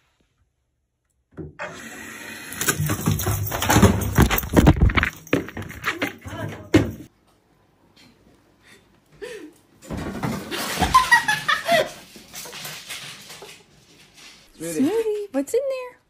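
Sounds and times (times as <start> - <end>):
person laughing in squealing bursts: 10.5 - 12.0.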